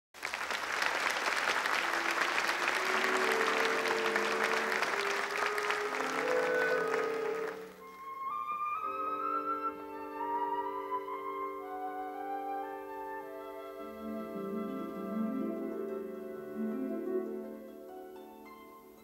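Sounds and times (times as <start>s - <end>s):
audience applauding: 0.1s - 8.0s
higher orchestral melody: 1.3s - 19.0s
orchestra sustained chords: 1.6s - 17.9s.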